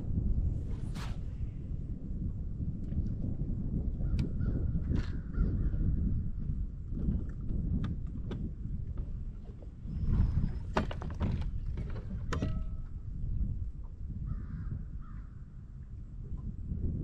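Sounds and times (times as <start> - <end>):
wind rumbling on microphone: 0.0 - 17.0.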